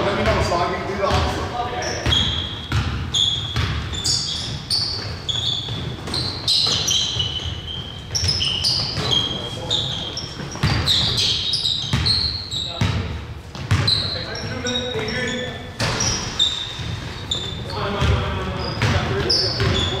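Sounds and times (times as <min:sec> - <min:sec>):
basketball bouncing on court: 0:00.0 - 0:15.2, 0:15.8 - 0:20.0
sneaker squeaks: 0:00.2 - 0:20.0.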